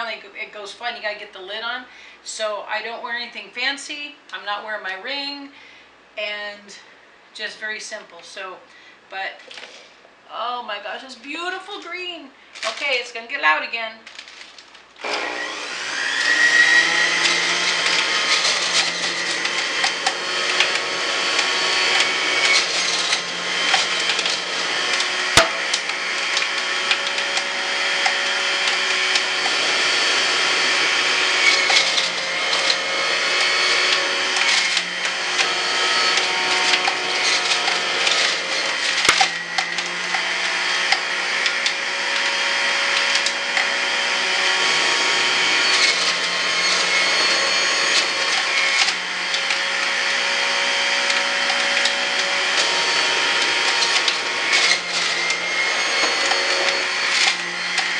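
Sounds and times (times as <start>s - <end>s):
juicer motor whine: 15.0s - 57.9s.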